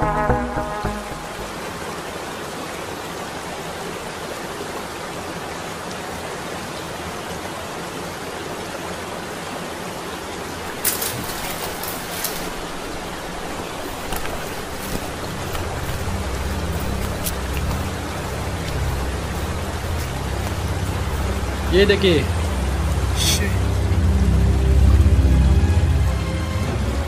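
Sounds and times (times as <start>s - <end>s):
waterfall splashing into pool: 10.4s - 17.8s.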